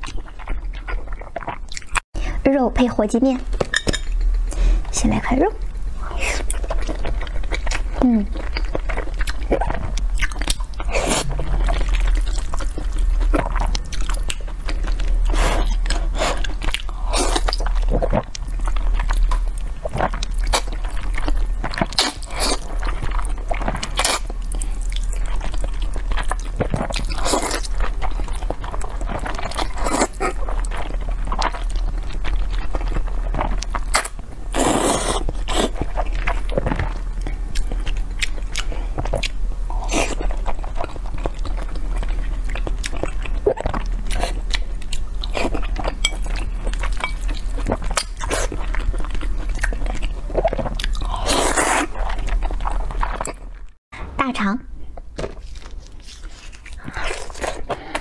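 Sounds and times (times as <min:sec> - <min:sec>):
steady low hum: 0:00.0 - 0:58.0
slurping and chewing noodles: 0:06.0 - 0:53.5, 0:55.4 - 0:58.0.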